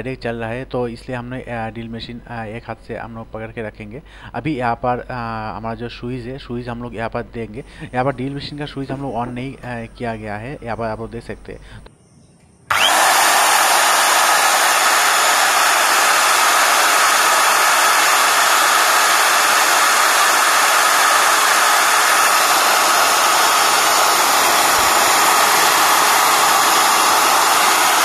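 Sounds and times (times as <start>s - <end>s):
drill motor running: 12.7s - 28.0s.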